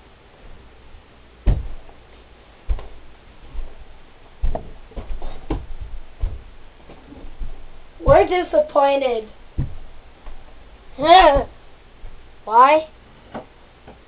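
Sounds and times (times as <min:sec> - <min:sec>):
footsteps in a small room: 0:00.3 - 0:12.5.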